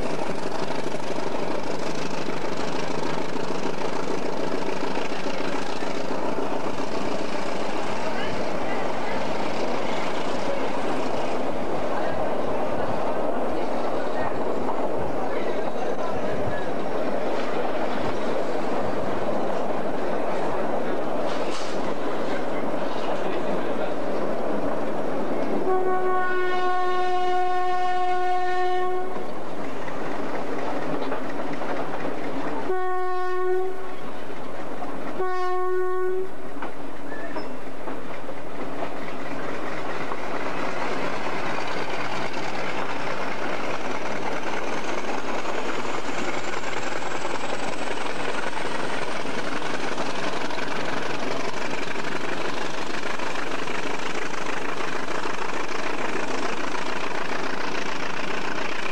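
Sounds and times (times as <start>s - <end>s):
train rumble and wheel clatter: 0.0s - 58.9s
locomotive horn blasts: 25.6s - 29.2s, 32.7s - 34.0s, 35.2s - 36.3s.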